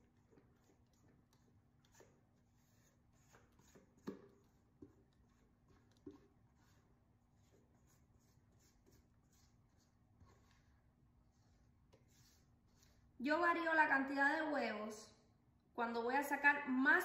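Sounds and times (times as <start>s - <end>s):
spatula scraping metal bowl: 0.0s - 13.1s.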